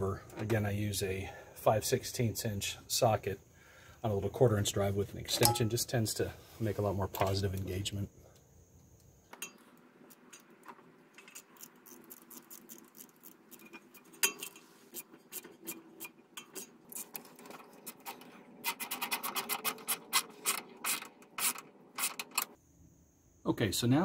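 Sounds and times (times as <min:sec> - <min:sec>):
ratchet clicks: 0:11.2 - 0:14.6, 0:18.6 - 0:22.6.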